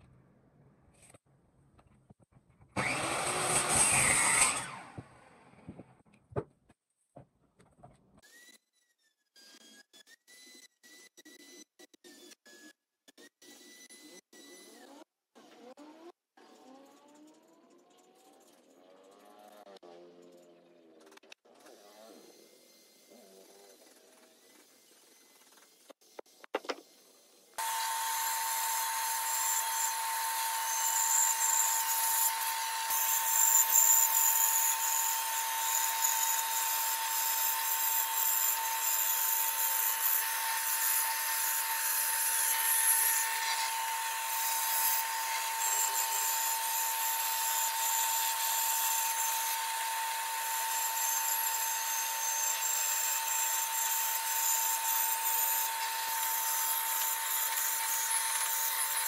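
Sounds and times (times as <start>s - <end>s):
power tool sanding wood: 2.8s - 4.8s, 27.6s - 59.0s.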